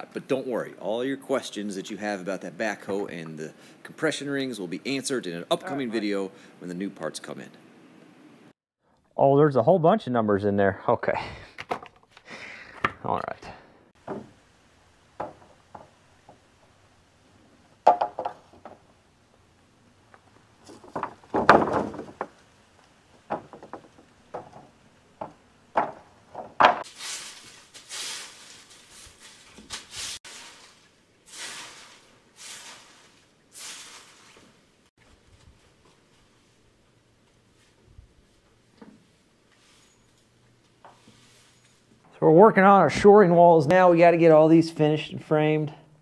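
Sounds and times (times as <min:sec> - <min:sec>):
wooden boards knocking and thudding: 0:14.0 - 0:14.4, 0:15.1 - 0:16.5, 0:17.8 - 0:18.9, 0:20.6 - 0:22.5, 0:23.1 - 0:26.8
rough scraping strokes: 0:26.8 - 0:34.6.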